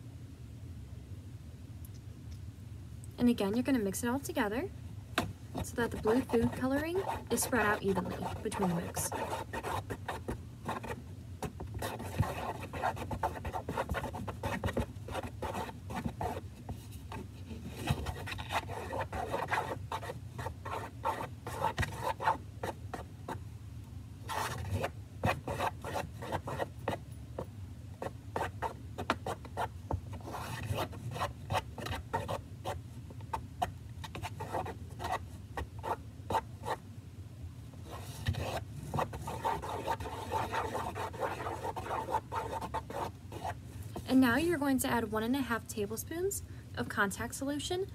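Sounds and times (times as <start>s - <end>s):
utensil stirring slime in plastic tub: 5.5s - 23.4s, 37.9s - 44.3s.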